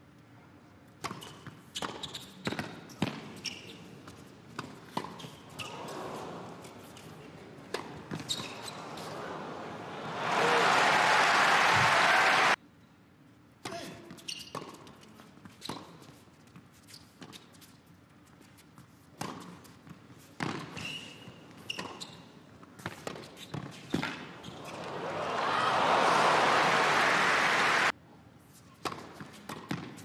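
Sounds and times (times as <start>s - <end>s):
crowd applause: 8.8s - 12.6s, 24.6s - 27.9s.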